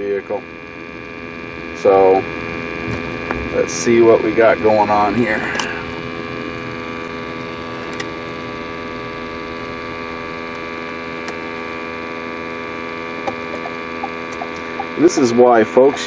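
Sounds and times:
hum of held tones: 0:00.0 - 0:16.0
low car cabin rumble: 0:13.1 - 0:15.0.

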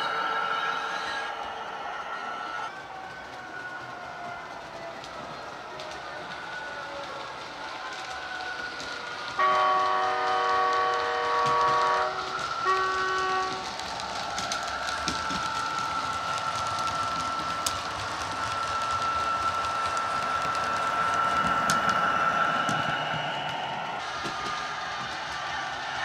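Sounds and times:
model train running: 0:00.0 - 0:26.0
model train horn: 0:09.4 - 0:13.6
steady high whine: 0:11.8 - 0:26.0.

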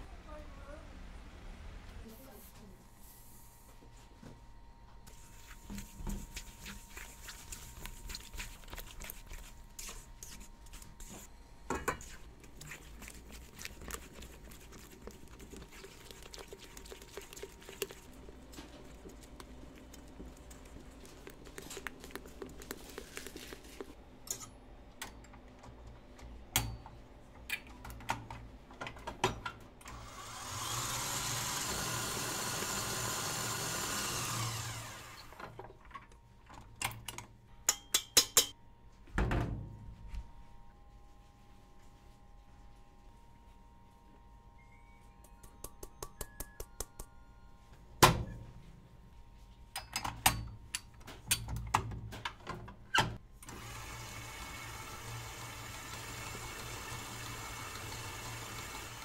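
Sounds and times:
whisk scraping a steel bowl: 0:11.9 - 0:19.2
stand mixer running: 0:30.2 - 0:35.2, 0:53.5 - 0:59.0.

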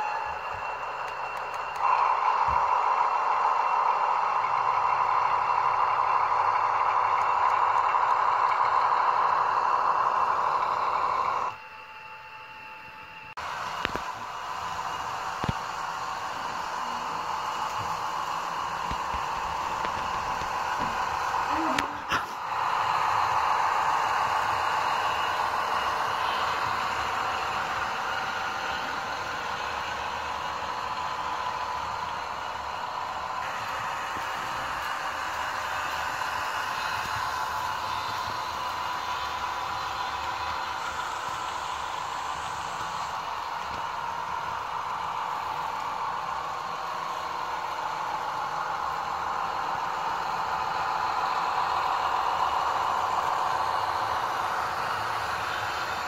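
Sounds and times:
model train wheels rattling on track: 0:00.0 - 0:11.5, 0:13.6 - 0:56.0.

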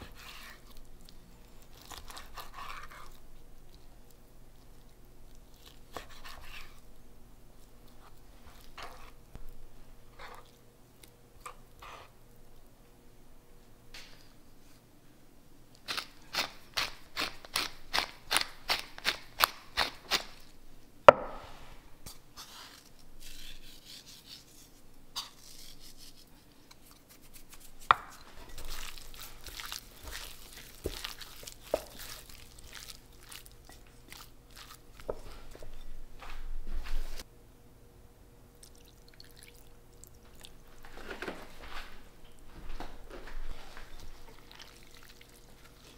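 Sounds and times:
hands squishing raw chicken: 0:00.0 - 0:06.8, 0:27.1 - 0:35.7, 0:44.2 - 0:45.9.

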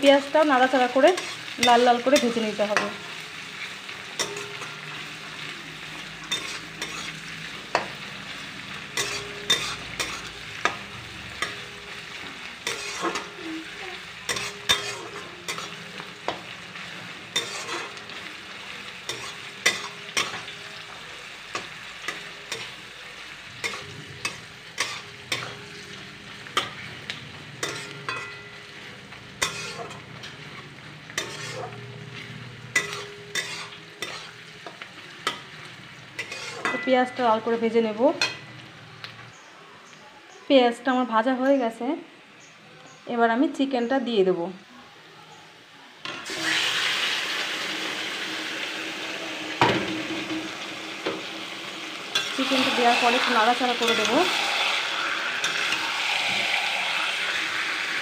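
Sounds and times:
onions sizzling in hot oil: 0:00.0 - 0:58.0
spatula scraping a wok: 0:00.7 - 0:38.6, 0:49.7 - 0:58.0.

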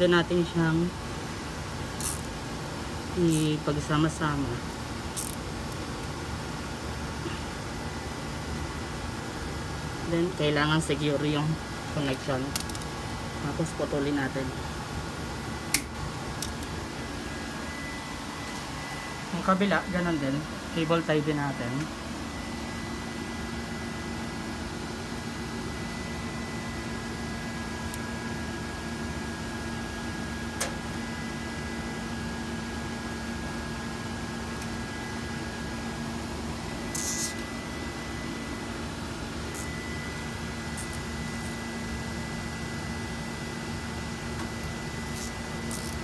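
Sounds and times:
equipment hum and fan noise: 0:00.0 - 0:46.0
high whine: 0:15.4 - 0:46.0
cable tie rasp: 0:36.9 - 0:37.4.

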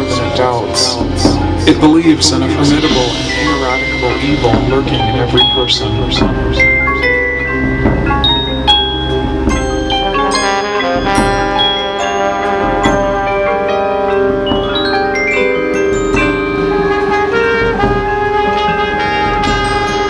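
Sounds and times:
held brass notes: 0:00.0 - 0:20.0
marimba and glockenspiel runs: 0:00.0 - 0:20.0.

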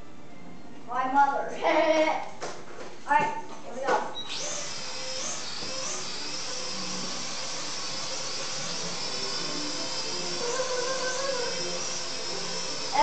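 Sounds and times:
toy drone motors whining: 0:04.3 - 0:13.0.

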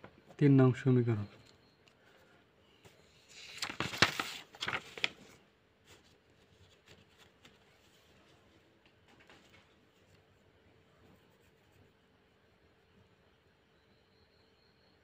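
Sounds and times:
paper rustling and crackling: 0:02.8 - 0:10.2.

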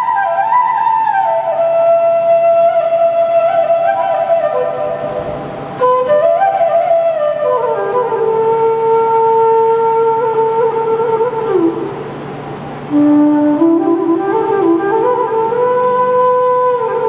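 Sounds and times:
bamboo flute melody: 0:00.0 - 0:11.9, 0:12.9 - 0:17.0.

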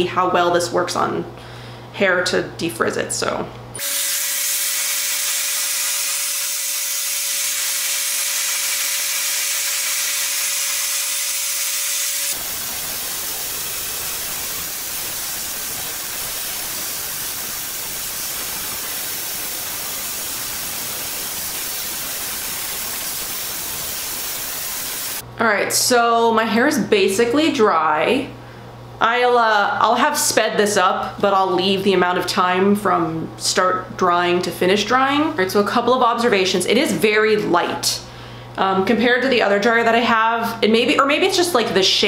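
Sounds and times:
hair dryer blowing: 0:03.8 - 0:25.2
hair dryer motor whine: 0:03.8 - 0:25.2.

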